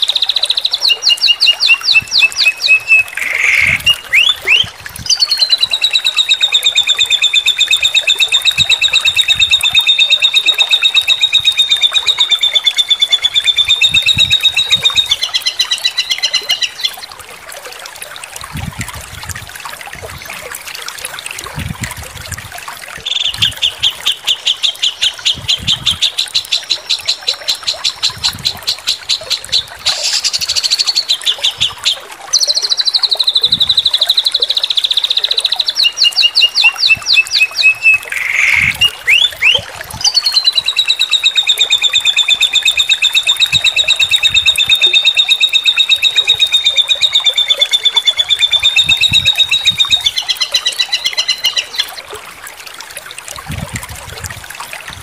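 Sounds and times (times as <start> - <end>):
bird chirps: 0.0 - 16.9, 29.3 - 51.9.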